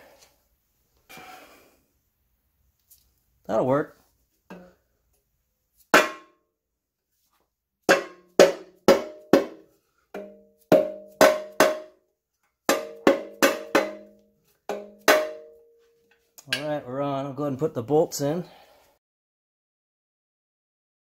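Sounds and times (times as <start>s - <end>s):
mallet striking metal housing: 6.0s - 6.4s, 7.9s - 9.6s, 10.2s - 12.0s, 12.7s - 15.8s.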